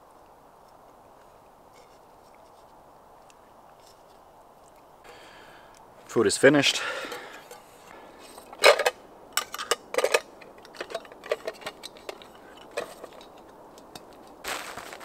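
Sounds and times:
metal cookware clinking: 0:08.5 - 0:14.1.

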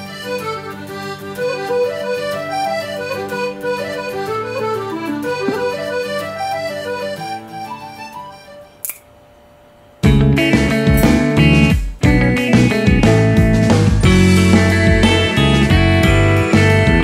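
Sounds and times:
solo accordion tune: 0:00.0 - 0:08.8.

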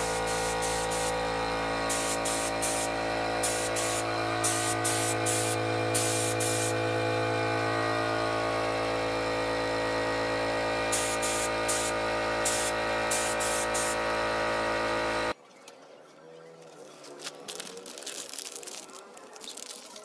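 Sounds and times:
paint spray gun hissing: 0:00.0 - 0:15.3
steady low hum: 0:00.0 - 0:15.4.

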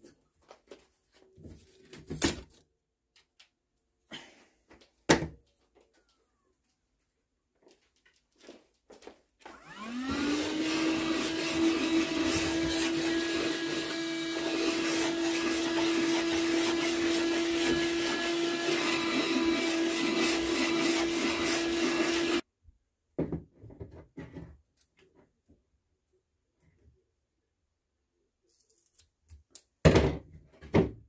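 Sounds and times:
handheld vacuum cleaner motor: 0:09.4 - 0:22.4.

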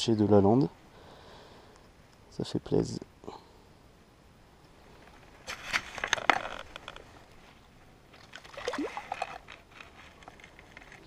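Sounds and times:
water splashing: 0:08.1 - 0:09.5.

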